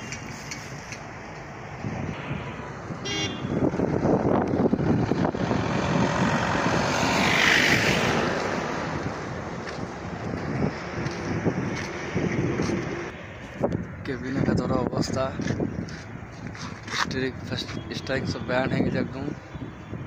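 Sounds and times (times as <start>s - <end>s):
vehicle driving past: 2.2s - 13.2s.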